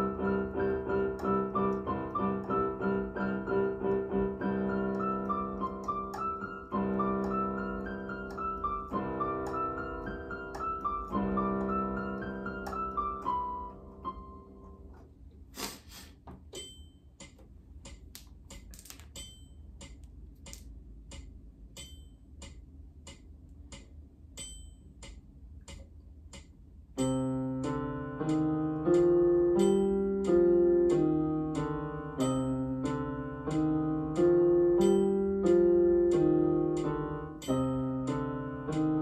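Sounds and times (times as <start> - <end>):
electronic keyboard sustained notes: 0.0 - 15.0, 27.0 - 39.0
light clicking ticks: 17.2 - 26.6, 27.6 - 31.8, 33.5 - 38.9.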